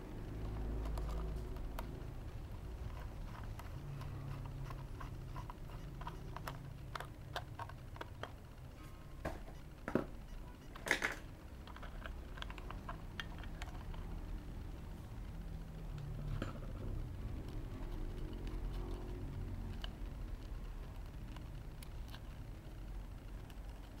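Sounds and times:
loud plastic clacks: 10.8 - 13.9.

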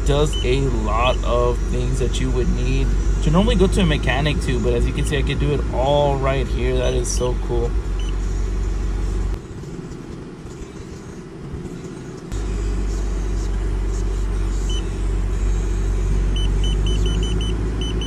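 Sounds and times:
car engine idling: 0.0 - 18.0
short high electronic beeps: 16.4 - 18.0.

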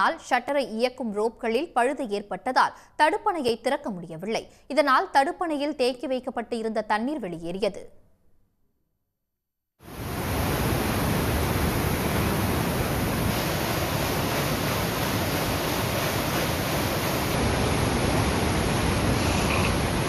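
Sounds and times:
floodwater rushing over dam: 9.9 - 20.0.

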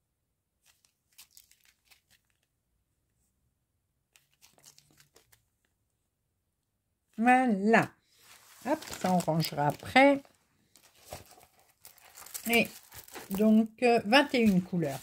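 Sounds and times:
plastic bags crinkling: 0.6 - 2.5, 4.2 - 5.4, 8.2 - 15.0.

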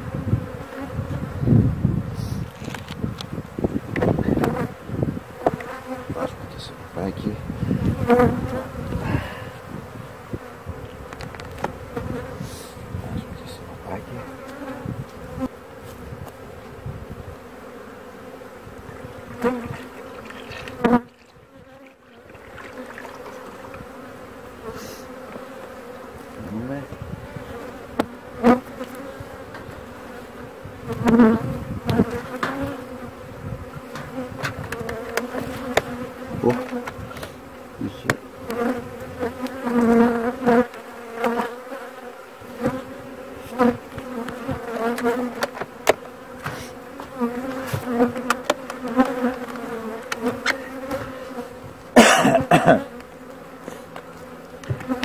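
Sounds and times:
honeybees buzzing: 0.0 - 55.0
knocks of hive parts: 3.9 - 4.6, 5.4 - 5.8, 11.0 - 12.2, 30.9 - 32.8, 33.8 - 37.4, 38.0 - 40.1, 43.6 - 51.2, 53.9 - 55.0.

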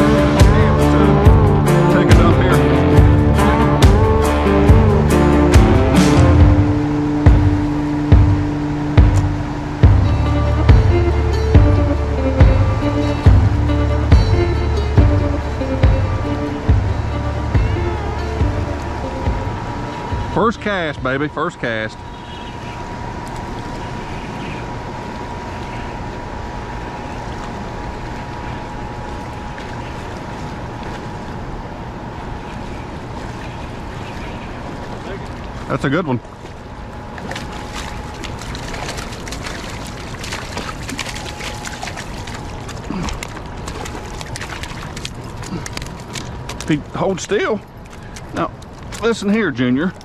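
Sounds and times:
faint high whine: 6.3 - 44.9
river water rushing over rapids: 36.6 - 49.3
fish flopping on wet stones: 37.1 - 46.8, 47.7 - 49.4.

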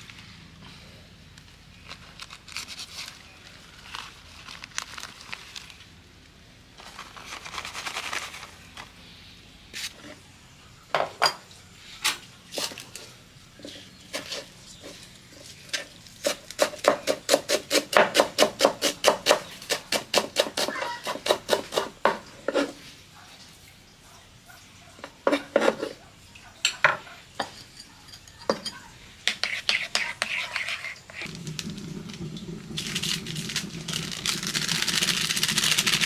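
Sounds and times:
knife chopping on wooden board: 16.2 - 22.7.

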